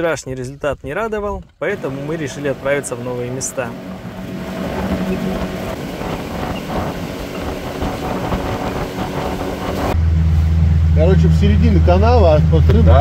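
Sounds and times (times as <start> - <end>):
rush of wind and water: 1.7 - 10.6
motorboat engine hum: 1.7 - 13.0.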